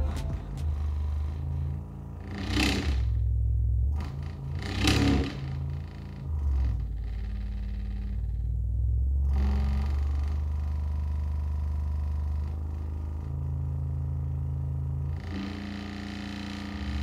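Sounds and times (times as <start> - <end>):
low bass test tones: 0.0 - 1.8.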